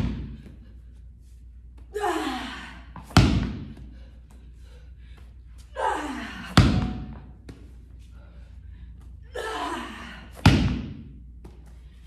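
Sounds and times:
medicine ball slamming on floor: 3.0 - 3.8, 6.6 - 7.6, 10.4 - 11.2.

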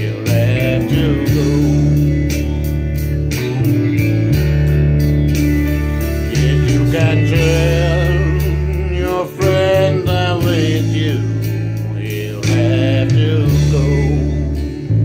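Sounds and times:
man singing country ballad: 0.0 - 3.0, 6.0 - 14.7
bass and guitar backing track: 0.0 - 15.0.

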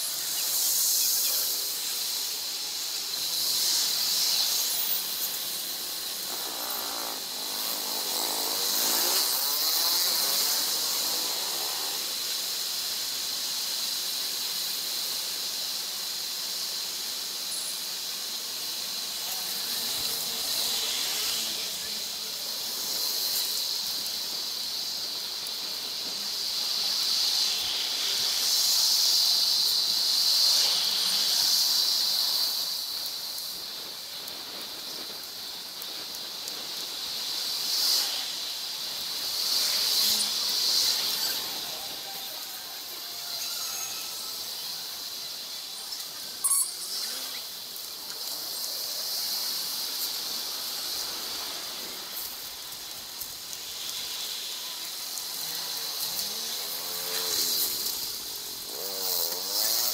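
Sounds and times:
steady hiss: 0.0 - 59.9
wind: 0.0 - 59.9
street traffic: 16.4 - 33.6, 36.0 - 59.9.

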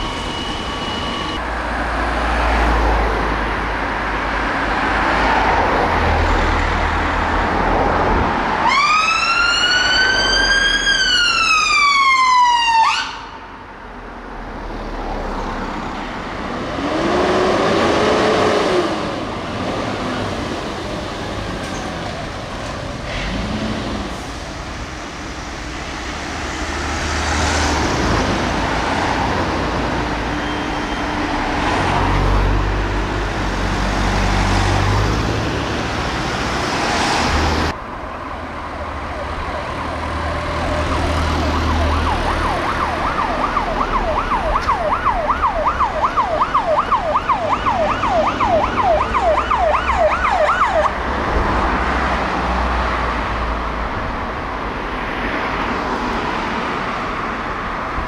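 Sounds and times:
road traffic: 0.0 - 58.0
emergency siren yelping: 8.6 - 13.6, 38.6 - 51.0
heavy vehicle engine rumbling: 15.2 - 58.0.

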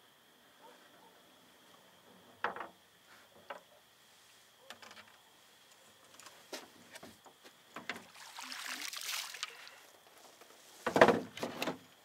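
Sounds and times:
water splashing and dripping: 7.8 - 9.8
thump against boat: 10.8 - 11.8.

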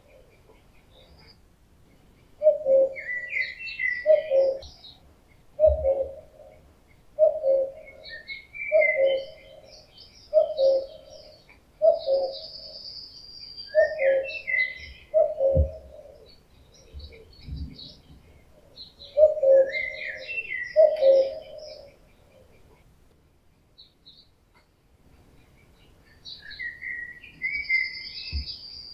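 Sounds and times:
songbirds chirping faintly: 0.0 - 28.9
cuckoo calling: 2.3 - 22.9, 25.4 - 28.9.

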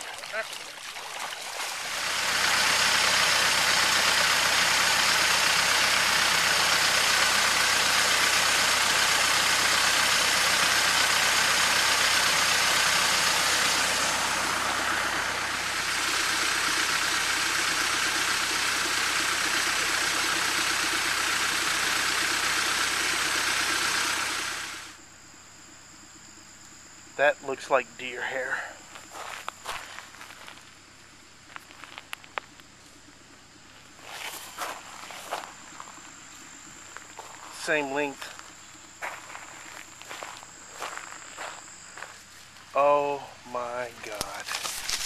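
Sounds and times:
water pouring into creek: 0.0 - 4.1
water rushing from pipe: 0.0 - 4.4.

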